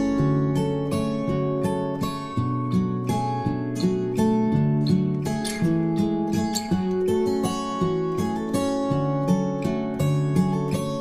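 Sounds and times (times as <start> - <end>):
plucked string melody: 0.0 - 11.0.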